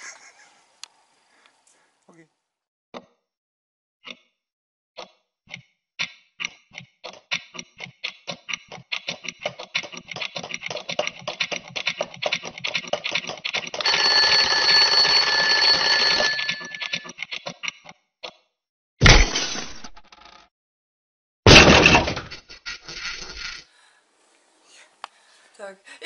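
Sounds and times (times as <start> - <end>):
alarm clock bell ringing: 13.8 - 17.0
alarm clock ticking: 13.8 - 17.1.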